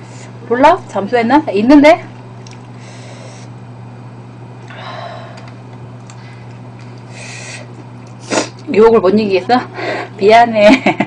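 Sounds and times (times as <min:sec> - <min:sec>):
low electrical hum: 0:00.0 - 0:11.0
person eating: 0:02.4 - 0:03.6, 0:04.6 - 0:08.7.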